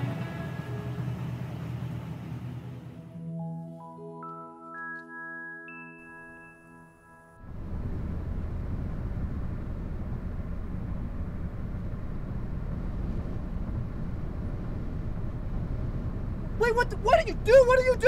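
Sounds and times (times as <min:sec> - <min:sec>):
car driving interior rumble: 0:07.4 - 0:18.0.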